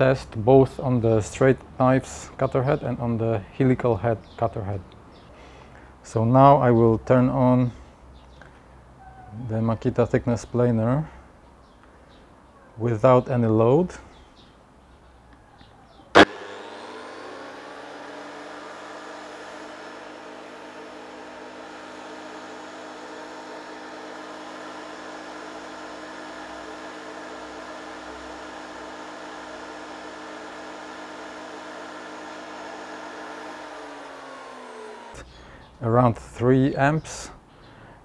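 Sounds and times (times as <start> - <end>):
planer motor whine: 16.2 - 35.3.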